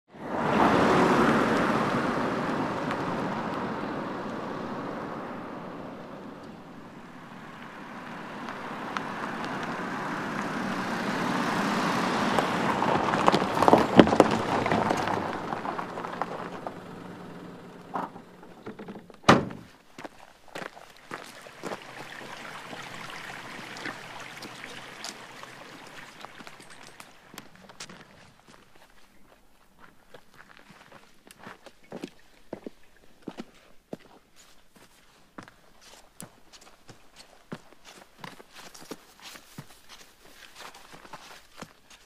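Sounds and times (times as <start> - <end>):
car driving by: 0.1 - 19.6, 21.1 - 27.8
loud thud: 19.2 - 19.7.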